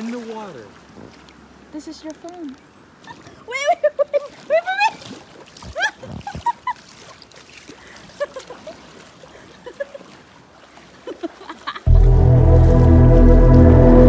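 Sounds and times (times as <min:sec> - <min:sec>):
river water rippling and sloshing: 0:00.0 - 0:14.0.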